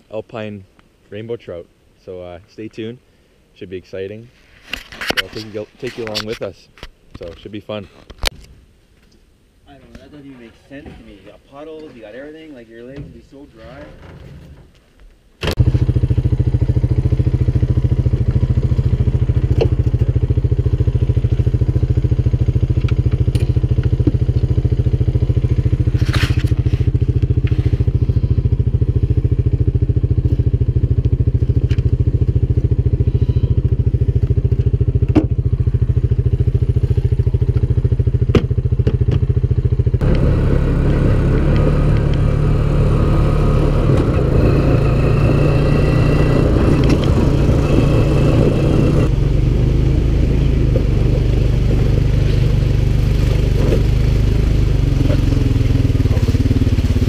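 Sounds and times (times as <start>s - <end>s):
atv engine idling: 15.6s - 57.0s.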